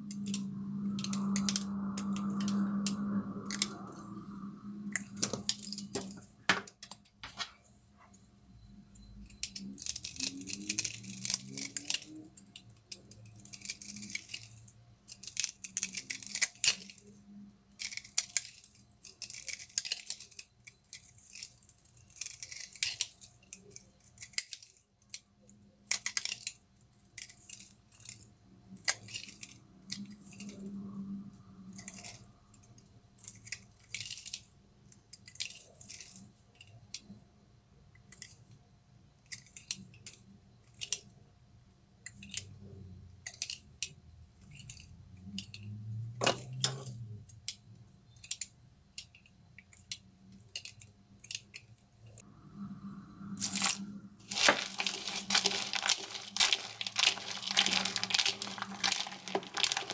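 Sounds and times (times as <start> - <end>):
soap crumbling with crisp crunches: 9.3 - 12.3, 12.9 - 17.1, 17.7 - 25.2, 53.4 - 59.9.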